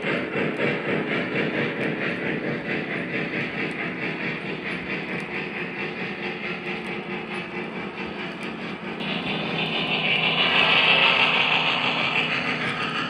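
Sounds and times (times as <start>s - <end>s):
model train wheels rumbling: 0.0s - 13.0s
faint clicks: 3.2s - 5.8s.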